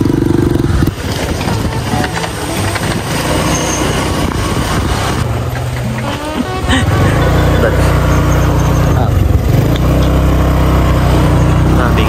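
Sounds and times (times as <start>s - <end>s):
motorcycle engine running: 0.0s - 12.0s
road noise: 0.0s - 12.0s.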